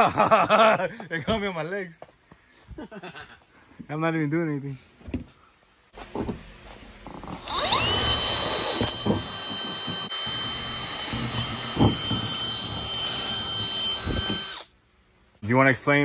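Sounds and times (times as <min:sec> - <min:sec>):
cordless drill boring through sheet metal: 0:07.4 - 0:14.7.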